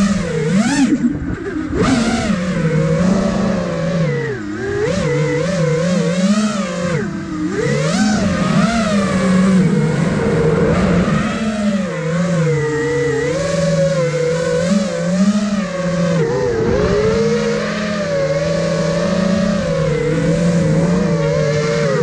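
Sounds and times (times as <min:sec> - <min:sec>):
drone motors whining: 0:00.0 - 0:22.0.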